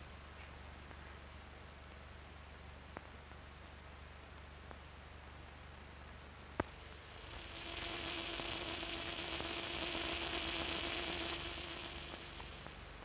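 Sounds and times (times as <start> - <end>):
film soundtrack hiss: 0.0 - 13.0
steady low tone: 6.5 - 13.0.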